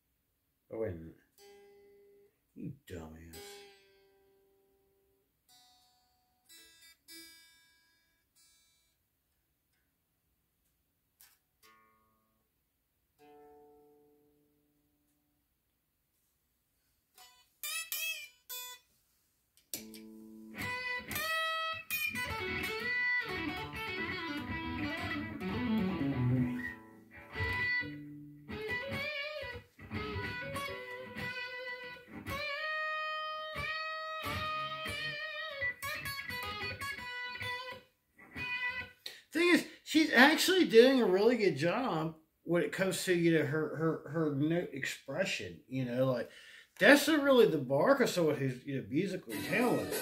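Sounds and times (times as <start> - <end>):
electric guitar blues lead: 19.7 - 41.8, 48.1 - 50.0.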